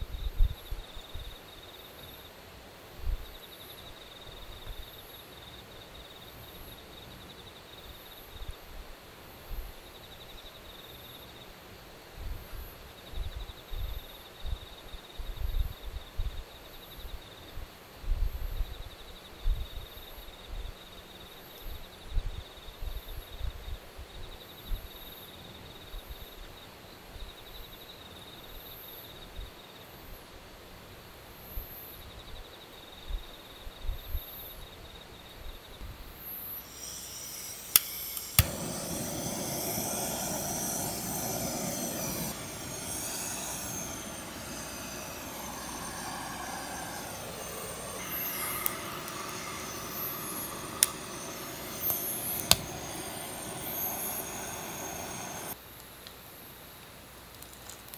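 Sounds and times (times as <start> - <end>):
night insects trilling: 36.4 - 55.6
gas torch hissing: 36.5 - 55.6
sharp clicks: 36.8 - 55.6.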